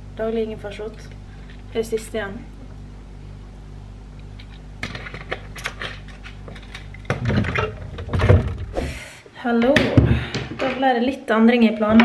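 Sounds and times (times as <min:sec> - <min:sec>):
steady low hum: 0:00.0 - 0:12.0
bumping and rustling: 0:07.0 - 0:09.0.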